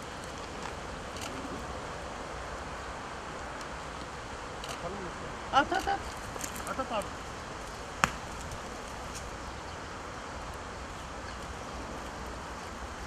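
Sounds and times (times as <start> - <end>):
outdoor background noise: 0.0 - 13.0
sharp knock: 8.0 - 8.3.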